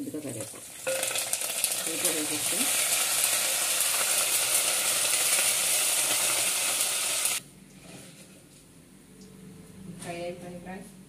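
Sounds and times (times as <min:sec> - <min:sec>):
hot oil sizzling in a pot: 0:00.0 - 0:07.4.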